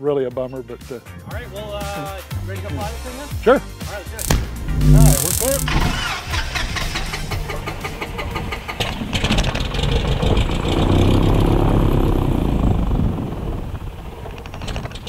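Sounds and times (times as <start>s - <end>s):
aircraft engine starting: 4.2s - 15.0s
starter turning propeller: 4.2s - 15.0s.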